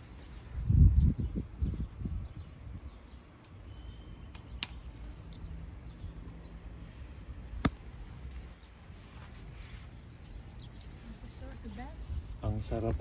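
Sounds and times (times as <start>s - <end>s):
faint bird chirps: 0.2s - 6.5s
scissors snipping stems: 4.2s - 5.5s.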